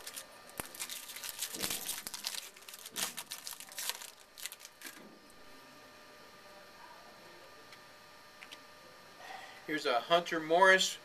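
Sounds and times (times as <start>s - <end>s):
foil wrapper crackling: 0.0s - 5.0s.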